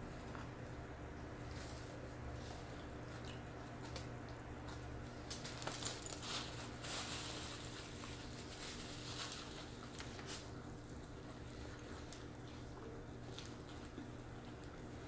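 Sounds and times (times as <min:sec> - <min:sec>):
low electrical hum: 0:00.0 - 0:15.0
chewing and wet mouth sounds: 0:02.7 - 0:04.5
paper wrappers crackling: 0:05.3 - 0:10.5.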